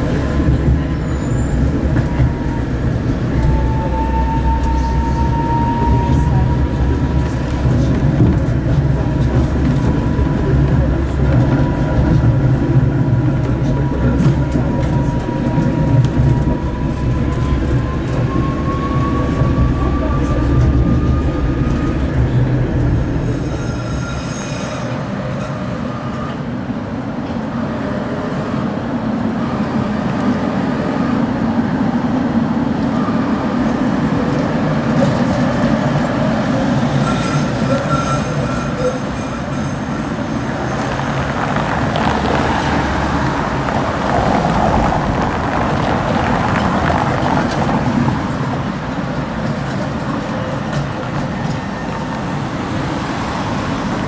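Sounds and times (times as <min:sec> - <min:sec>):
road traffic: 0:00.0 - 0:54.0
tram wheels rumbling on rails: 0:00.0 - 0:54.0
high wheel squeals: 0:00.8 - 0:06.8, 0:23.0 - 0:26.4, 0:36.8 - 0:41.2.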